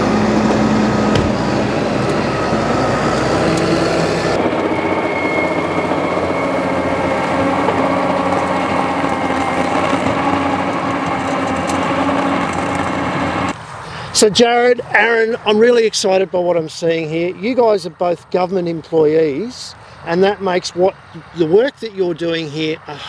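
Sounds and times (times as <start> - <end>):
tractor engine under load: 0.0 - 13.8.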